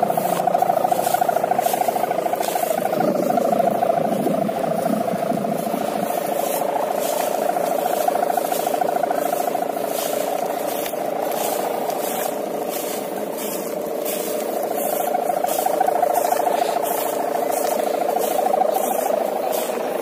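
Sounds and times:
kite hummers droning in wind: 0:00.0 - 0:20.0.

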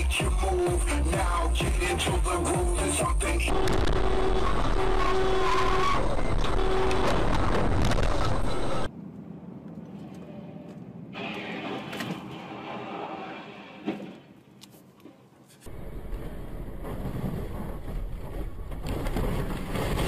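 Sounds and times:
car road noise: 0:00.0 - 0:13.6.

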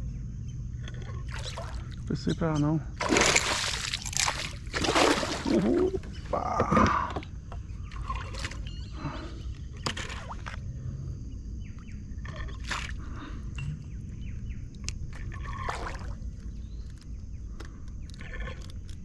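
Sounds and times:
water sloshing and splashing: 0:00.9 - 0:02.1, 0:03.0 - 0:06.3, 0:07.1 - 0:08.8, 0:09.7 - 0:10.8, 0:12.2 - 0:17.0
steady low rumble: 0:10.6 - 0:12.3.

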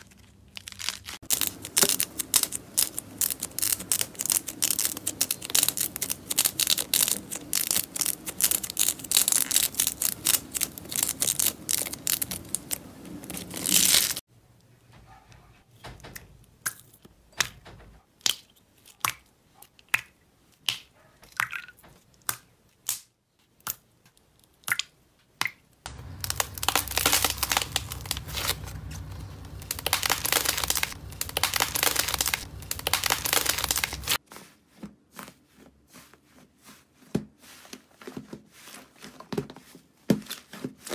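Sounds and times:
slime squishes: 0:00.0 - 0:14.2, 0:22.1 - 0:40.9
slime crackling and clicking: 0:00.6 - 0:12.8, 0:24.5 - 0:34.2.

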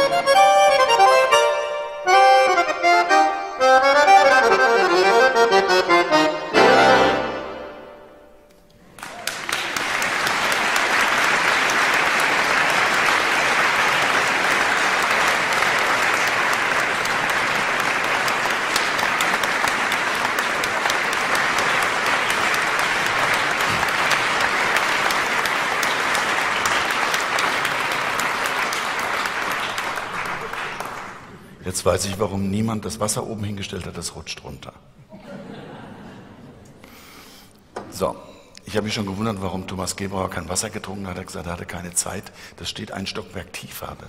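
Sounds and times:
large audience applauding: 0:08.8 - 0:31.6.

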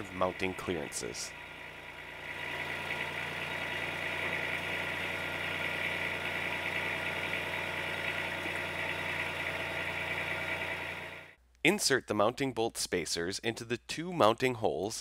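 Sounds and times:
machine engine running: 0:00.0 - 0:11.4.

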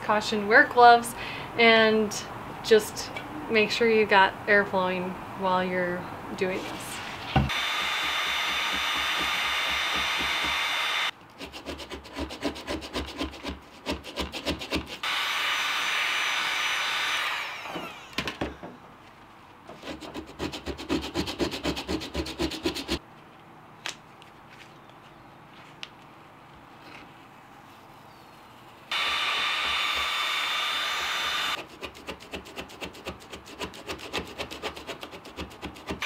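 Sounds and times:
heat gun blowing: 0:07.5 - 0:11.2, 0:15.0 - 0:18.3, 0:28.9 - 0:31.6.

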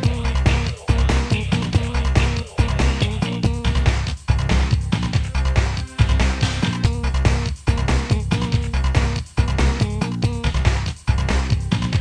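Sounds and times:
background music with strong bass: 0:00.0 - 0:12.0.

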